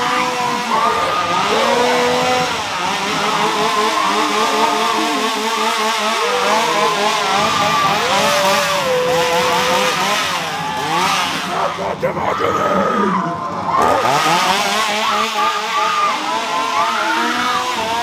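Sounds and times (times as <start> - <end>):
engines revving: 0.0 - 18.0.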